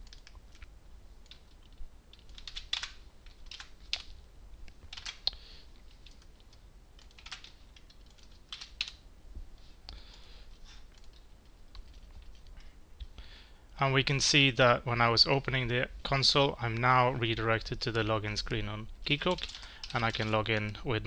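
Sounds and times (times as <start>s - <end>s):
keyboard typing: 0.0s - 0.6s, 1.2s - 4.1s, 4.9s - 5.3s, 5.9s - 9.0s, 10.9s - 12.5s, 19.2s - 20.7s.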